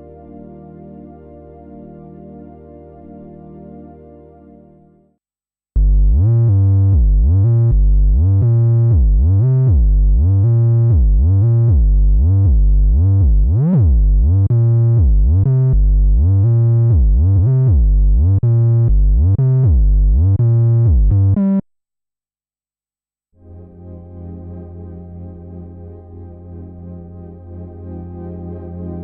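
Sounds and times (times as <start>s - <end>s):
pulsing bass synthesizer: 5.8s - 21.6s, 23.4s - 29.0s.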